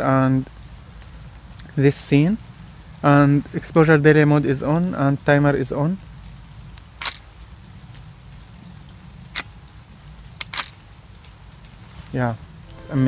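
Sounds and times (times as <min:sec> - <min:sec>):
camera shutter clicks: 0:07.0 - 0:07.2, 0:10.4 - 0:10.8.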